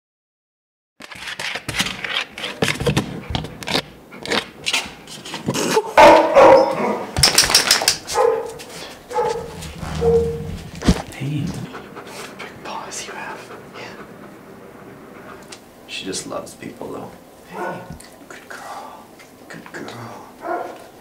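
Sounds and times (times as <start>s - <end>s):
dogs barking: 5.6s - 7.2s, 8.0s - 11.0s, 17.5s - 18.0s, 20.4s - 21.0s.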